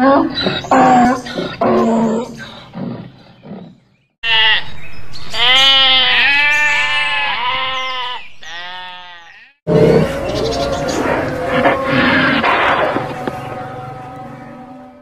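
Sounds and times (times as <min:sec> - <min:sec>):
farm animal bleating: 0:04.2 - 0:14.1.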